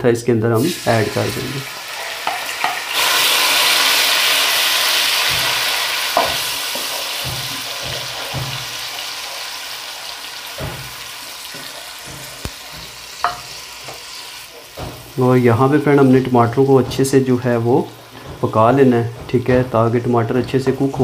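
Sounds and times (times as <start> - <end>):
paste sizzling in hot oil: 0.6 - 21.0
wooden spatula knocking on pan: 5.0 - 9.2, 10.4 - 14.0, 14.7 - 21.0.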